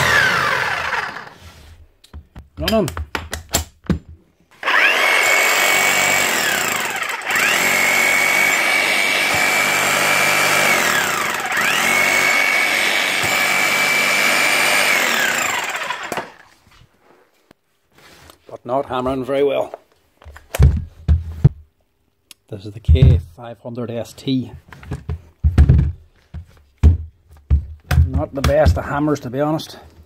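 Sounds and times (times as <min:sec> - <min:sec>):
demolition hammer motor whining: 0:00.0 - 0:01.4, 0:04.5 - 0:16.5.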